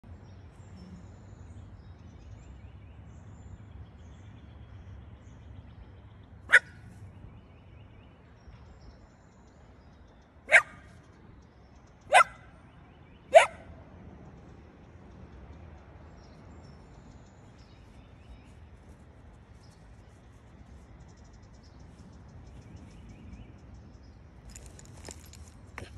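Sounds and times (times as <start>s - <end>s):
dog barking: 6.5s - 6.8s, 10.5s - 10.8s, 12.1s - 12.5s, 13.3s - 13.7s.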